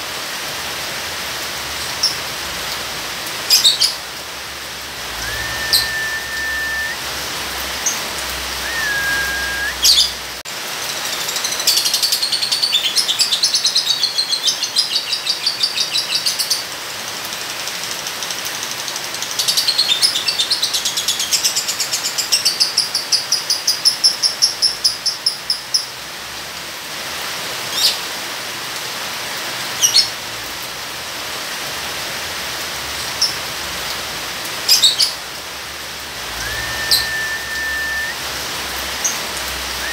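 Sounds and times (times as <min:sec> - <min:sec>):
rain hissing: 0:00.0 - 0:14.7, 0:26.0 - 0:39.9.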